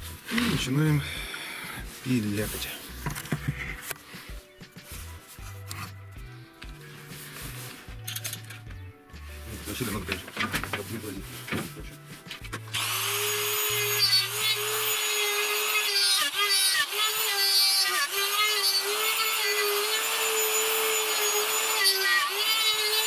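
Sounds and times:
electric router whining: 12.6s - 23.0s.

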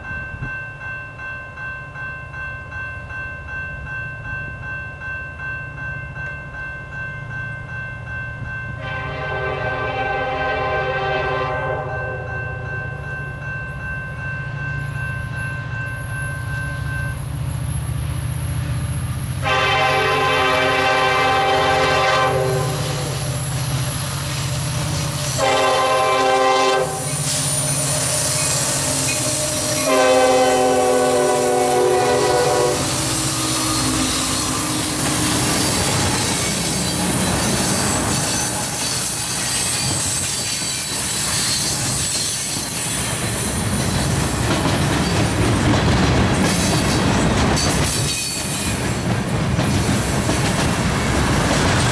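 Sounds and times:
locomotive horn blasts: 8.8s - 12.3s, 19.4s - 23.2s, 25.4s - 35.7s
locomotives passing: 17.9s - 51.9s
wheels squealing: 27.0s - 30.4s, 32.8s - 44.2s
wheels clattering over rail joints: 33.9s - 51.9s.

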